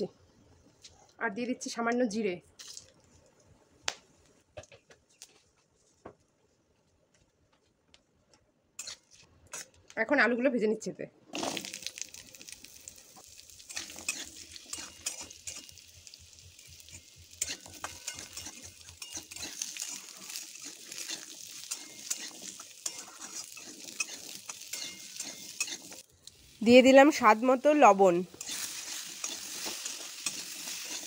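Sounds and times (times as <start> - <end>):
steel spatula scraping pan: 8.8 - 9.7, 13.6 - 15.9, 16.6 - 26.0, 28.3 - 31.0
potatoes sizzling in hot oil: 11.4 - 31.0.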